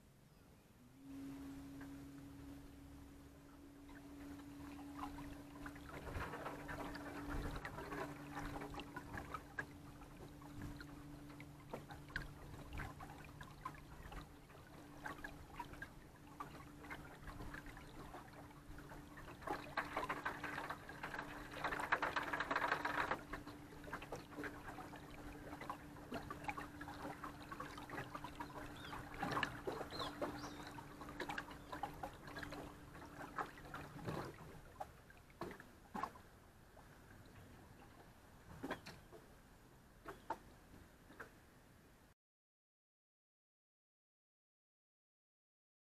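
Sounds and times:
electric trolling motor humming: 0.8s - 14.7s
water lapping against hull: 0.8s - 42.1s.

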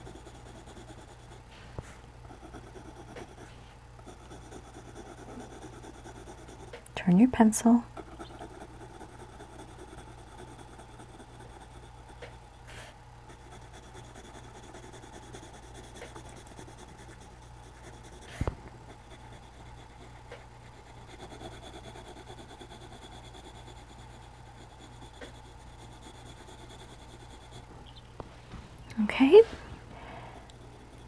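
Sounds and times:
pencil scratching on paper: 0.0s - 1.4s, 2.3s - 6.8s, 7.9s - 12.4s, 13.3s - 27.7s.

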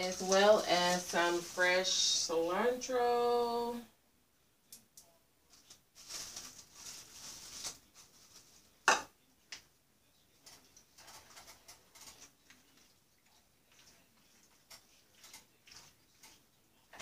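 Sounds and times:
wooden spoon stirring in skillet: 0.0s - 2.9s, 10.3s - 17.0s
soft rustling: 5.5s - 8.8s.

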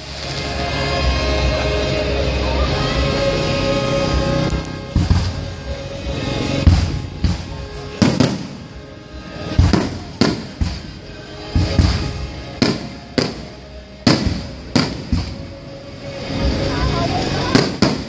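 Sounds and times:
music: 0.0s - 18.0s
firework shells bursting: 4.9s - 5.7s, 6.7s - 8.8s, 9.4s - 15.7s, 17.5s - 18.0s.

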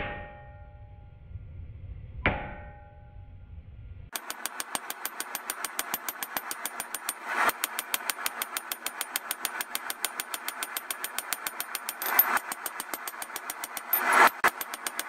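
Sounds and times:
small engine running: 4.1s - 15.0s.

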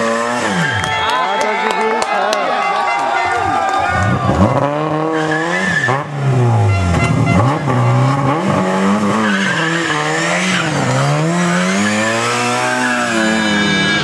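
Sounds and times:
rally car engine revving: 0.0s - 1.0s, 3.9s - 14.0s.

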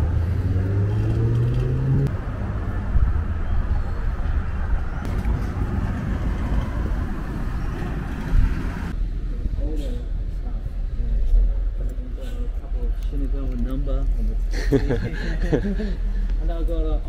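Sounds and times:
vehicle engine accelerating: 0.0s - 2.7s
low rumble of vehicle noise: 0.0s - 17.0s.

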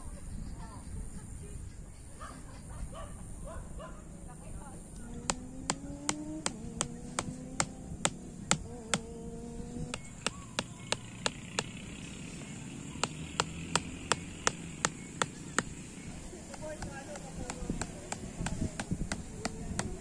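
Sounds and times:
mallet tapping metal tent pegs: 5.2s - 9.1s, 13.0s - 20.0s.

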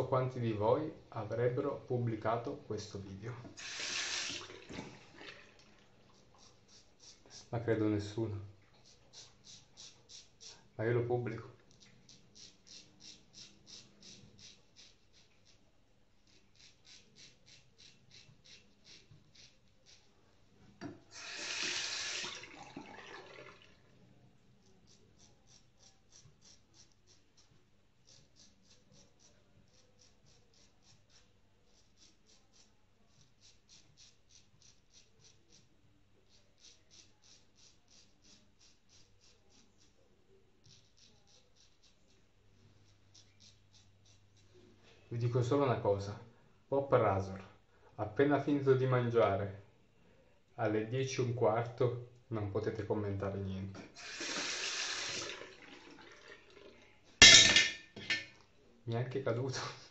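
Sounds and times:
razor scraping stubble: 8.7s - 10.6s, 11.6s - 20.1s, 24.6s - 40.0s, 40.6s - 44.6s.

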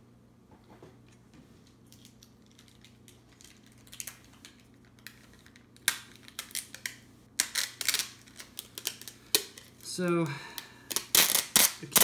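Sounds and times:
packing tape ripping off roll: 5.0s - 9.7s, 10.9s - 12.0s.

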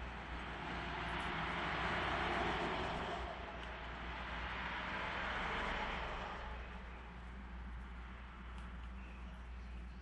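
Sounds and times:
vehicle passing: 0.0s - 7.0s.

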